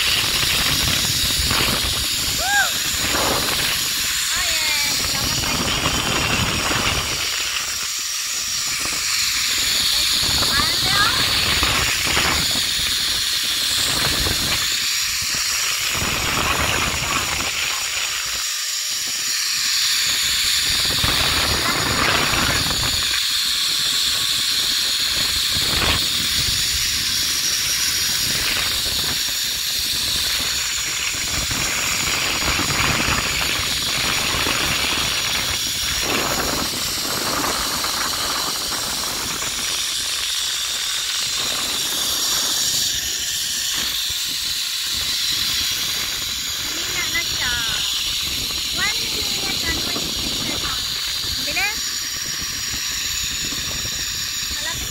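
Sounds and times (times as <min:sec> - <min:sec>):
wind gusting on microphone: 0:00.0 - 0:18.4, 0:19.0 - 0:54.9
zipline pulleys hissing on cable: 0:00.0 - 0:54.9.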